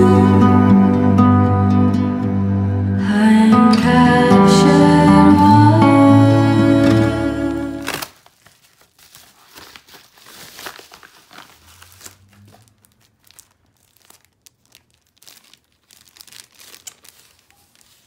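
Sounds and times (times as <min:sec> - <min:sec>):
plastic wrapping rustling: 0:06.7 - 0:18.0
paper mailer crinkling: 0:06.8 - 0:18.0.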